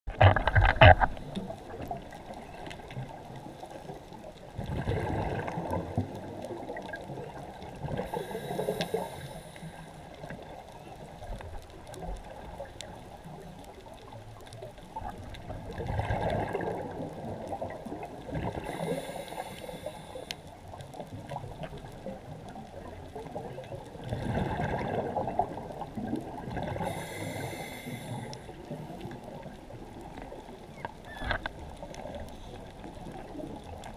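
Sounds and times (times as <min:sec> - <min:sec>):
exhaled bubbles gurgling: 0:00.1 - 0:33.9
diver breathing through regulator: 0:08.0 - 0:10.0, 0:18.6 - 0:20.5, 0:26.7 - 0:28.6.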